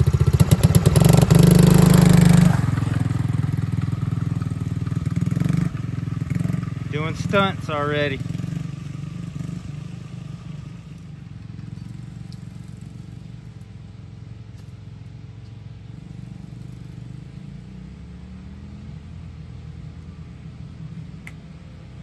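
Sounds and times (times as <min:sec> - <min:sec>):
small engine running: 0:06.2 - 0:08.6.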